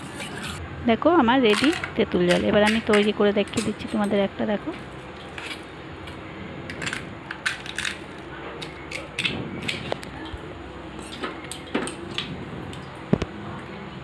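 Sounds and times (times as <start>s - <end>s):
fried shell crackling: 4.9s - 13.1s.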